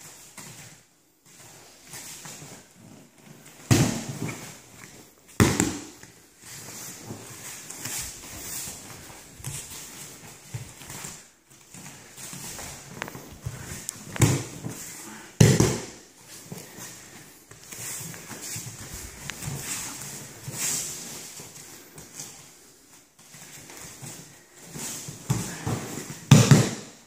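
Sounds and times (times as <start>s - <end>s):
bare feet shuffling on mats: 0.0s - 27.0s
heavy fabric rustling: 1.2s - 26.3s.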